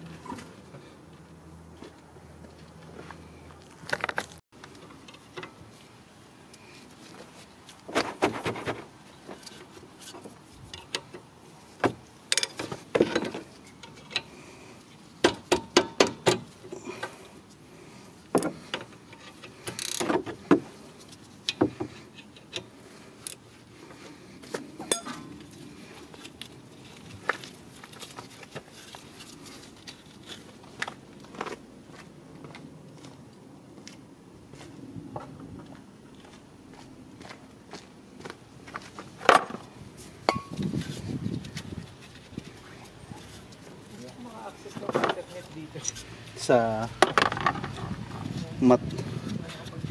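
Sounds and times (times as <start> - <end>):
metal tool clinking on brake caliper: 24.8 - 25.3, 40.3 - 40.6.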